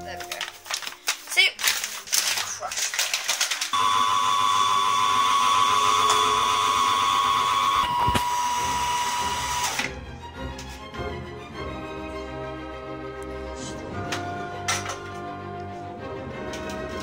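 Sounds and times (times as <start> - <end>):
electric kitchen grinder whining: 3.7 - 9.9.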